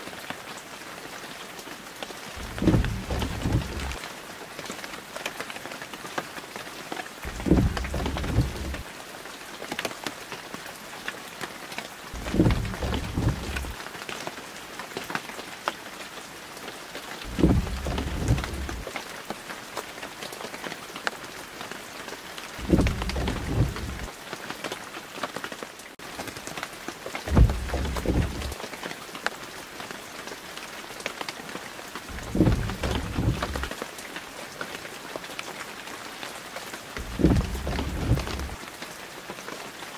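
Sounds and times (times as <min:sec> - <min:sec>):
rain hissing on wet street: 0:00.0 - 0:39.9
deep rumble: 0:02.4 - 0:04.0, 0:07.3 - 0:08.8, 0:12.2 - 0:13.8, 0:17.3 - 0:18.9, 0:22.6 - 0:24.1, 0:27.3 - 0:28.6, 0:32.1 - 0:33.7, 0:37.0 - 0:38.6.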